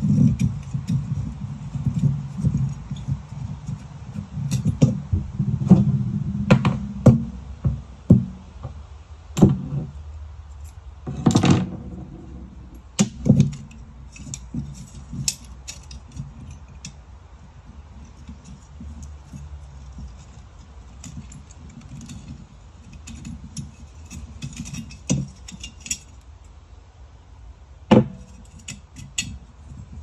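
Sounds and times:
metal scrape: 0:00.0 - 0:07.4, 0:10.6 - 0:26.2.

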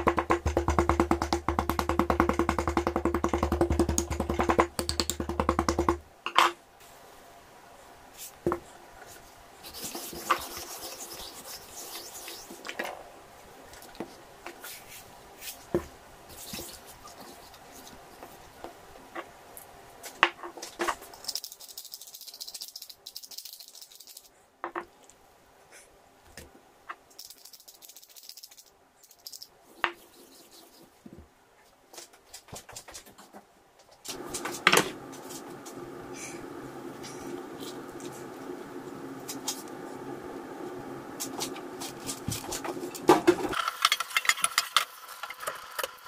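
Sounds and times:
rustling hiss: 0:34.1 - 0:45.9.

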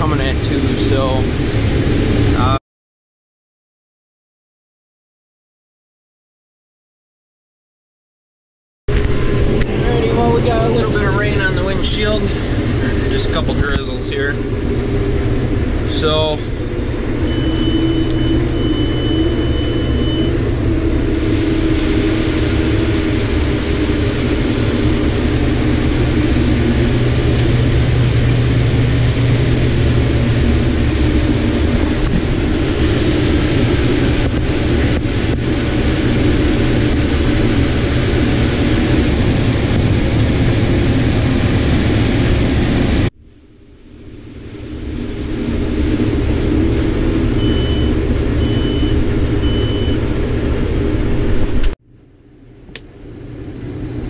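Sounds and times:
combine harvester droning: 0:00.0 - 0:02.6, 0:08.9 - 0:54.0
short high beeps: 0:17.2 - 0:20.4, 0:47.4 - 0:50.0.

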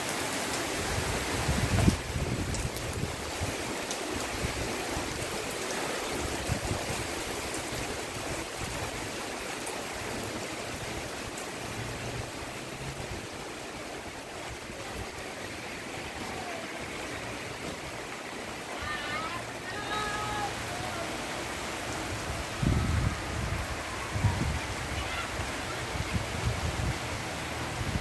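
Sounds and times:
heavy rain: 0:00.0 - 0:28.0
wind gusting over microphone: 0:00.8 - 0:03.6, 0:21.3 - 0:28.0.

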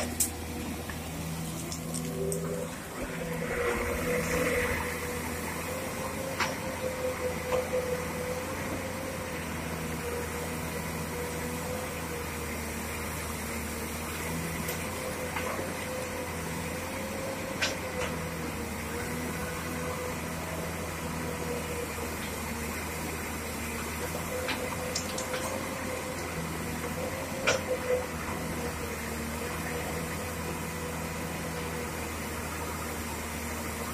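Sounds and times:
steady whine: 0:00.0 - 0:09.5
excavator diesel engine running: 0:00.0 - 0:33.9.

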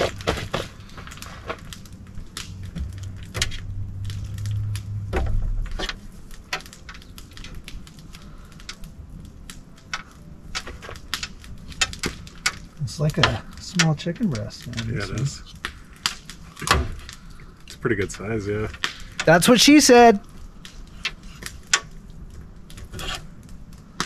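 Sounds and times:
low hum: 0:00.0 - 0:19.2.

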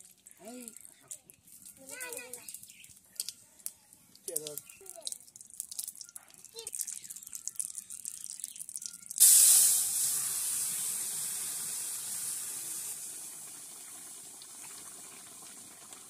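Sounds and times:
vegetables sizzling in hot oil: 0:04.8 - 0:16.0.

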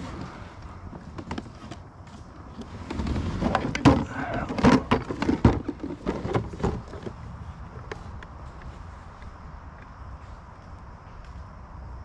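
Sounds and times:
plastic cooler knocking and scraping: 0:00.9 - 0:01.9, 0:02.5 - 0:07.2.

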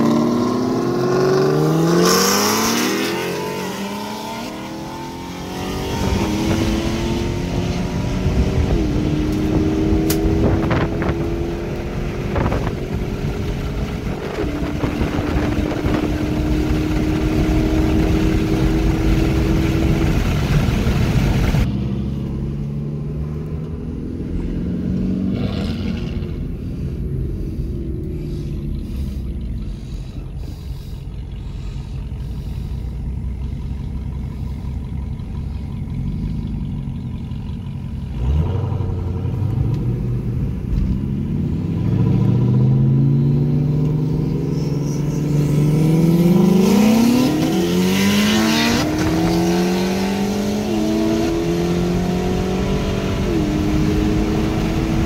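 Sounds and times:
car engine drone in cabin: 0:00.0 - 0:55.0
engines accelerating hard: 0:00.0 - 0:55.0
road and wind noise: 0:00.0 - 0:55.0
constant hum: 0:04.5 - 0:47.9.

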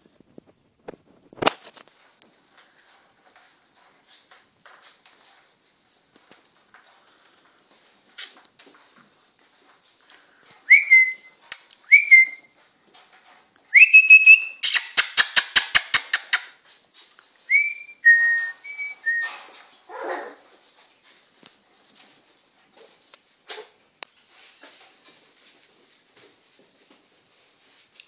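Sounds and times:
puppies whining: 0:17.6 - 0:20.5.

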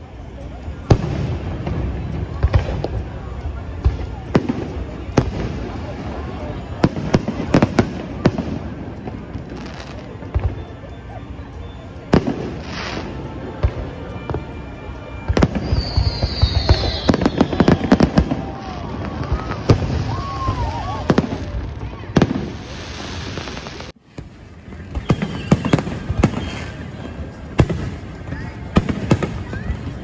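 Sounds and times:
fireworks bangs and crackles: 0:00.0 - 0:30.0
firework falling whistle: 0:09.9 - 0:21.6, 0:24.9 - 0:27.8.

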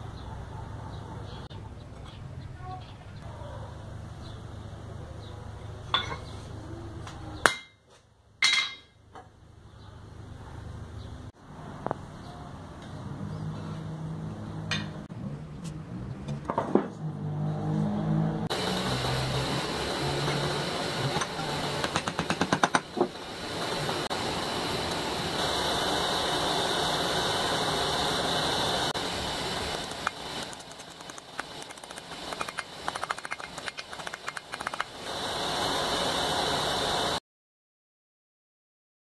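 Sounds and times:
rushing hiss of torch flame: 0:23.2 - 0:33.0, 0:34.6 - 0:37.2.

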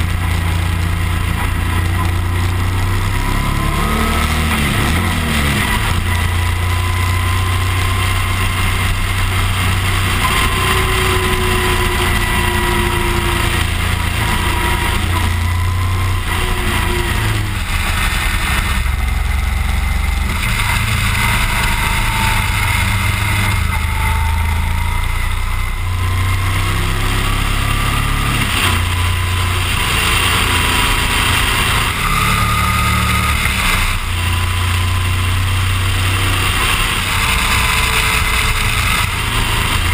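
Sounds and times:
motorcycle engine running: 0:00.0 - 0:39.9
wind and road noise: 0:00.0 - 0:39.9.

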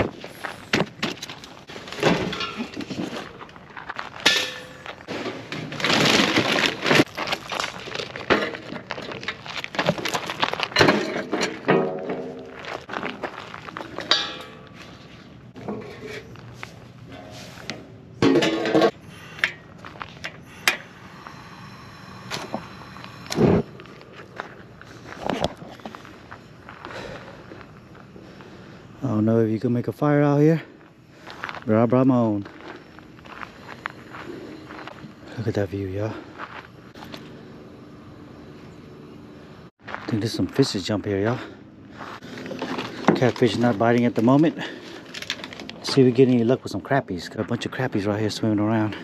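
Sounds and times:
scraping and rustling gear: 0:00.2 - 0:11.7, 0:41.9 - 0:46.4
metal fire pit dragged: 0:01.6 - 0:26.3, 0:42.0 - 0:46.3
gas igniting in a burst: 0:22.2 - 0:23.7.

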